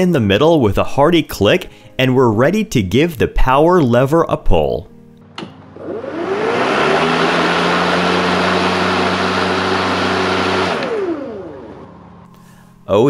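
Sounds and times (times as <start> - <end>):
switch click: 5.2 - 5.6
electric lawn mower running: 5.3 - 12.4.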